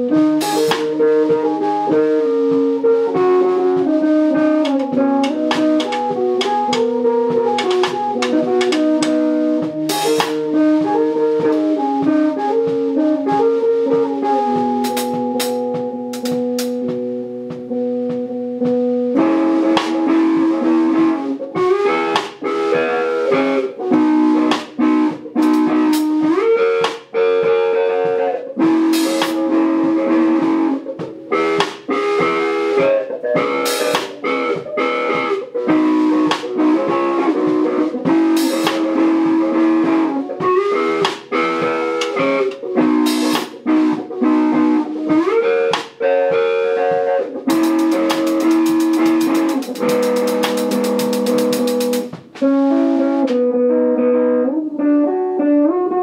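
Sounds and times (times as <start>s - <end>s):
drums playing: 0.0s - 53.5s
electric guitar chords: 0.0s - 56.0s
cymbal crashes: 47.5s - 52.3s.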